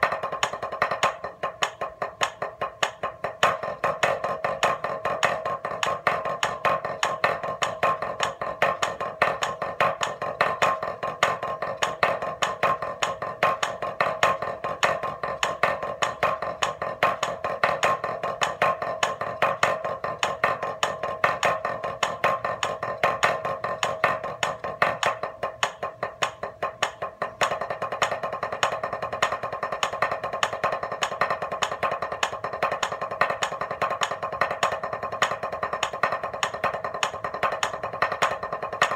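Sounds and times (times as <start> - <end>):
drumsticks on practice pad: 0.0 - 38.9.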